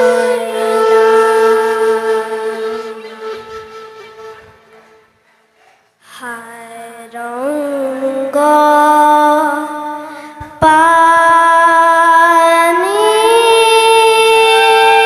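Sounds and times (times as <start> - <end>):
harmonium: 0.0 - 5.0
bamboo flute long notes: 0.0 - 5.2, 13.1 - 15.0.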